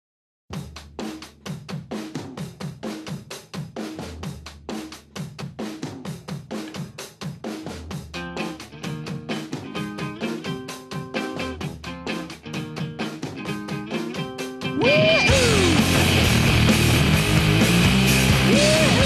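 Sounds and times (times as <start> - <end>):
fast drum kit beat: 0.5 - 19.0
guitar: 8.1 - 19.0.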